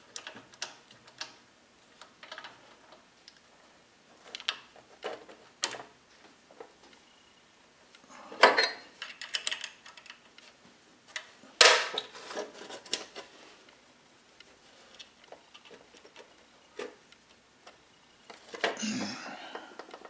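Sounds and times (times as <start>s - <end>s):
metal parts clicking and clinking: 8.4s - 10.2s.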